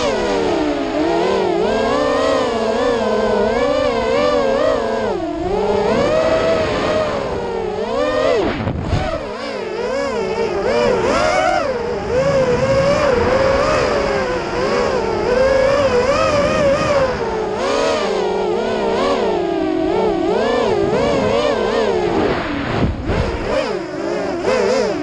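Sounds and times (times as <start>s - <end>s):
quadcopter motors whining: 0.0s - 25.0s.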